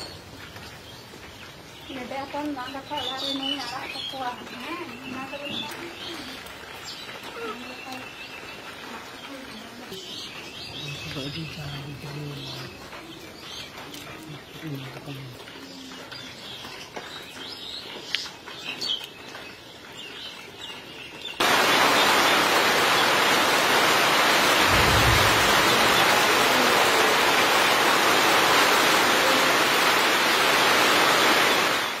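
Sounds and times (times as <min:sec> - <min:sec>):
heavy rain hiss: 0:21.4 - 0:32.0
low rumble: 0:24.5 - 0:27.6.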